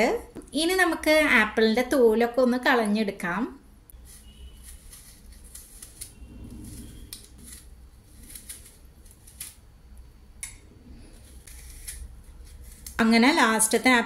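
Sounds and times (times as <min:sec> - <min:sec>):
knife scraping apple peel: 0:03.9 - 0:09.7, 0:10.8 - 0:13.8.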